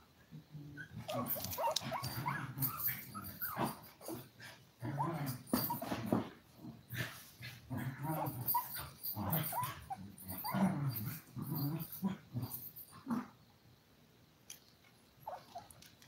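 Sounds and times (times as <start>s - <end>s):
puppies growling and yipping: 0.7s - 6.2s, 6.9s - 13.3s, 15.2s - 15.8s.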